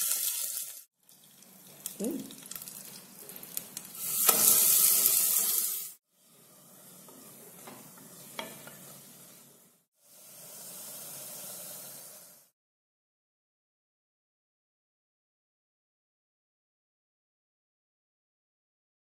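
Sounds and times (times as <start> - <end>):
paste sizzling in hot oil: 0.0 - 12.5.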